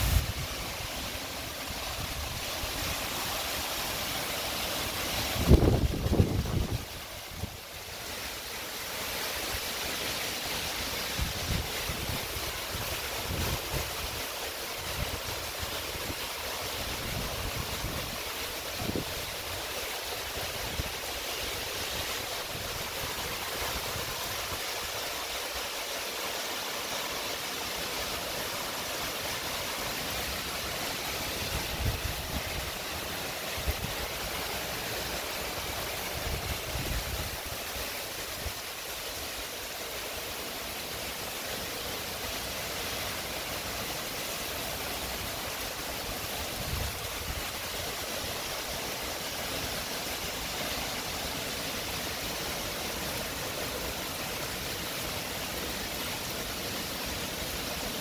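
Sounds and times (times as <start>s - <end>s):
wind gusting on microphone: 0.0s - 0.9s, 5.2s - 7.6s, 31.4s - 32.8s
heavy rain pouring: 0.0s - 58.0s.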